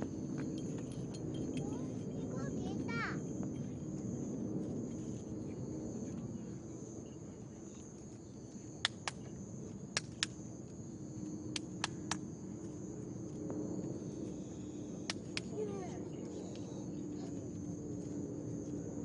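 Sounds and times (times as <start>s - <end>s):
night insects chirring: 0.0s - 19.0s
low background murmur: 15.4s - 19.0s.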